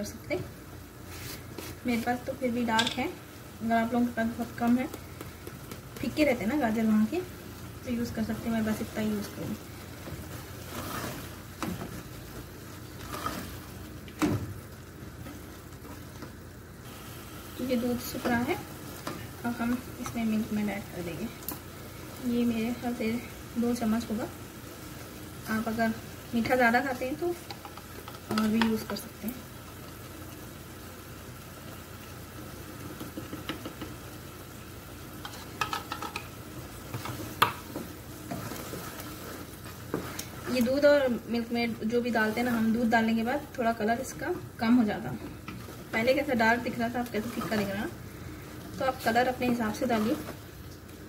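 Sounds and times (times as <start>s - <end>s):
mixture sizzling: 0.0s - 51.0s
wooden spoon stirring: 8.0s - 13.8s, 35.2s - 51.0s
wooden spoon stirring thick mixture: 8.6s - 13.8s, 36.9s - 41.1s.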